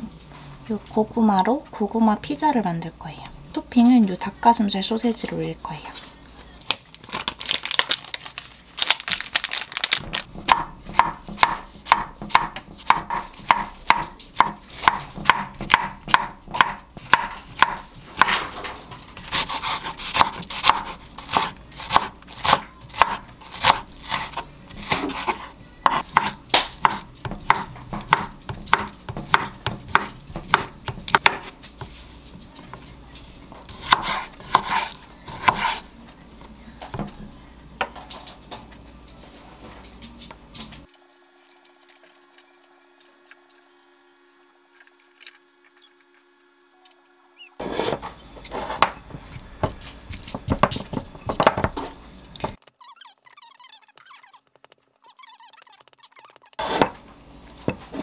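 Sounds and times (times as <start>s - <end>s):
knife chopping on wooden board: 10.4s - 18.4s, 19.2s - 31.9s, 33.7s - 35.8s, 47.6s - 52.6s, 56.6s - 57.0s.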